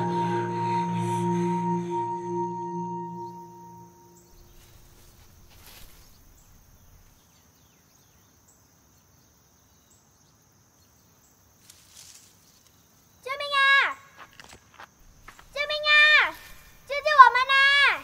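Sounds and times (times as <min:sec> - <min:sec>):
faint chirps: 0:00.0 - 0:11.3
high insect drone: 0:00.0 - 0:18.0
brief rustle: 0:04.5 - 0:07.2.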